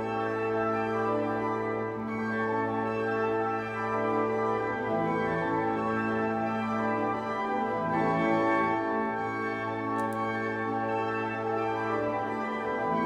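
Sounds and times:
pipe organ chords: 0.0s - 13.0s.

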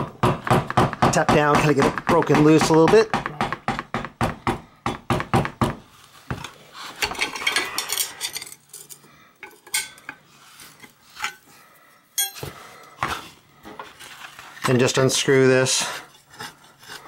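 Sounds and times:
metal scraping and rattling: 6.4s - 11.5s
steel parts clinking: 6.4s - 11.5s, 12.2s - 12.5s.

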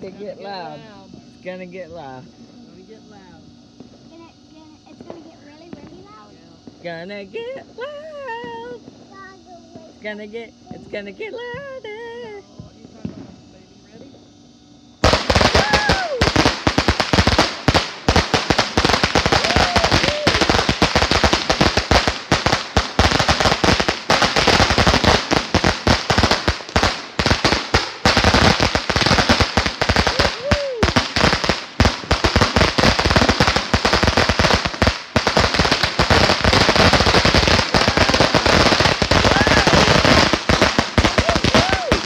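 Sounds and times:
firecrackers banging: 15.0s - 42.0s.

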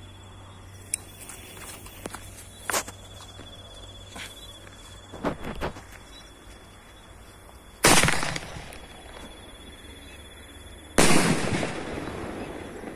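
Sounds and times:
firework bangs: 7.8s - 8.9s, 11.0s - 12.9s.

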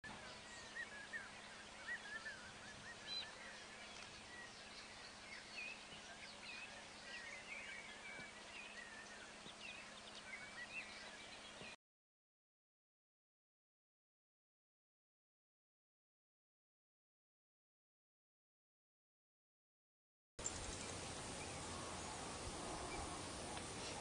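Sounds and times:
small birds chirping: 0.1s - 11.8s, 20.4s - 24.0s
steady hiss: 20.4s - 24.0s.

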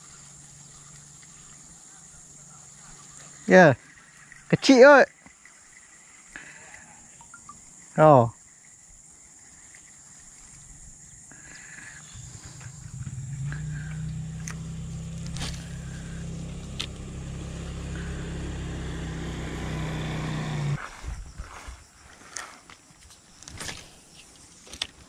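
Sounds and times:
vehicle engine drone: 11.6s - 20.8s.

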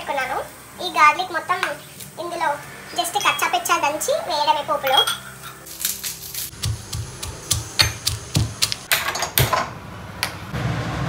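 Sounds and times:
steel pestle pounding in cup: 5.8s - 9.6s.

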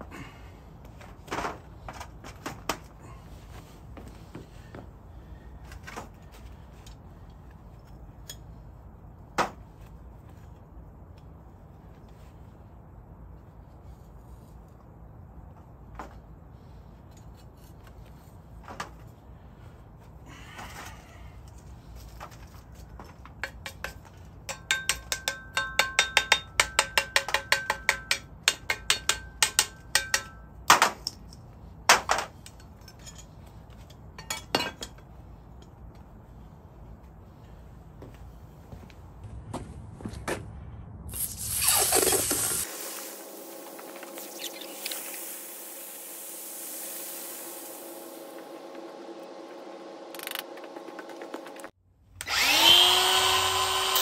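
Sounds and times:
metal tool tapping metal: 23.4s - 31.2s.

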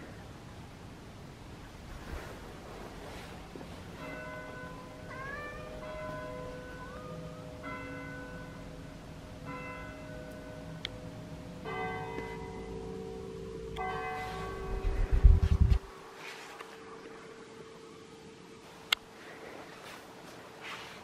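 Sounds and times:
church bells ringing: 3.9s - 15.6s.

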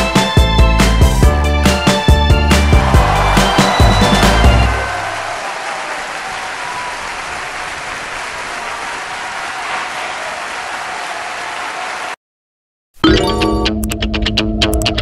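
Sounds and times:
applause: 2.4s - 12.2s.

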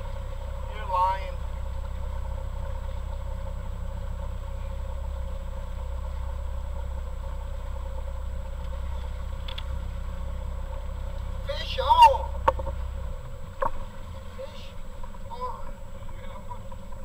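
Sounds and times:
motorboat engine running: 0.0s - 17.0s.

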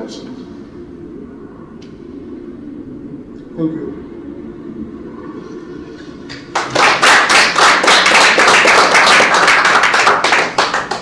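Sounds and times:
audience applauding: 6.3s - 11.0s.

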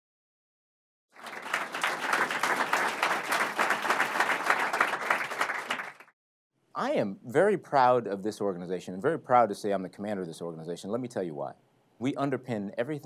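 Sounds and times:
audience applauding: 1.2s - 6.2s.

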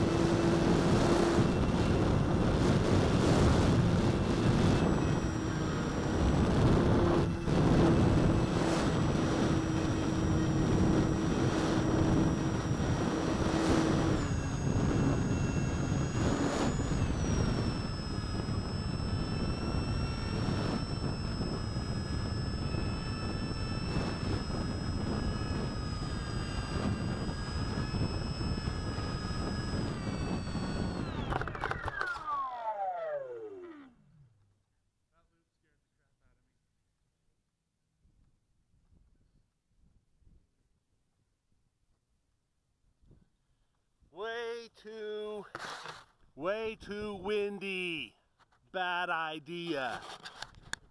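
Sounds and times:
wind buffeting microphone: 0.0s - 32.1s
electric motor whine: 0.0s - 34.5s.

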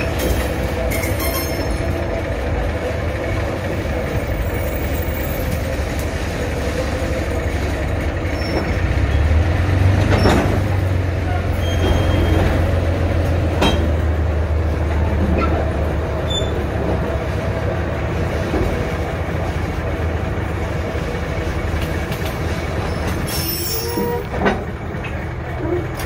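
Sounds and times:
high wheel squeal: 0.0s - 2.1s, 8.2s - 9.3s, 11.2s - 12.8s, 16.2s - 16.7s, 22.8s - 24.5s
rail clicks: 0.0s - 26.0s
wheels rumbling on rail: 0.0s - 26.0s.

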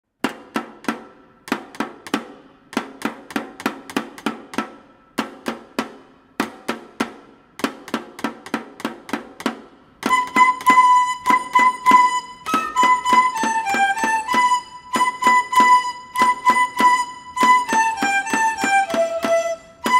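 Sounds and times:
stick striking percussion: 0.2s - 19.9s
bamboo flutes melody: 10.0s - 19.9s.

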